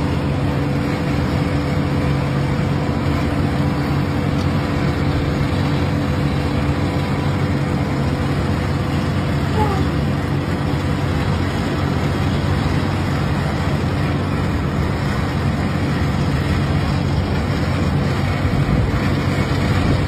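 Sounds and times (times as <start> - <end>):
broad rushing noise: 0.0 - 20.0
heavy diesel engines running: 0.0 - 20.0.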